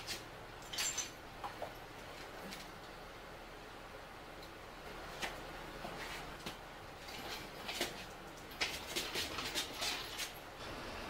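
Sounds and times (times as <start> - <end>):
metal clinks and knocks: 0.0 - 2.7, 7.0 - 10.5.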